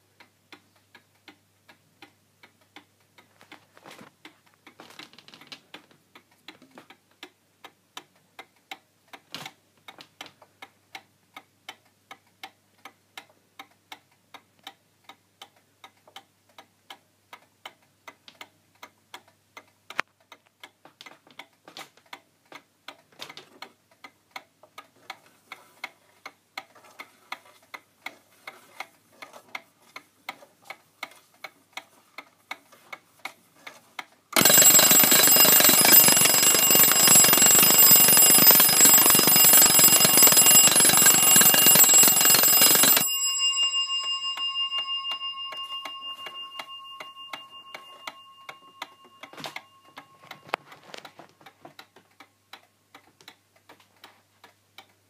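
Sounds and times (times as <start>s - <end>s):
clock ticking: 0.0s - 4.7s, 29.5s - 55.0s
sharp clock click: 34.4s - 50.1s.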